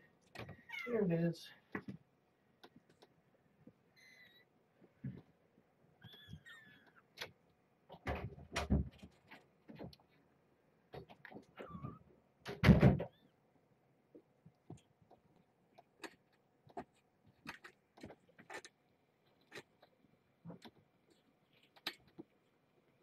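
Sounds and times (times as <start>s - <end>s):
faint clicks and taps: 2.6s - 3.8s.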